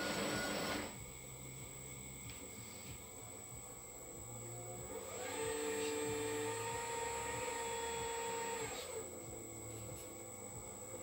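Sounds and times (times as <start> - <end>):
hydraulic pump whine: 0.0 - 1.2, 4.3 - 10.2.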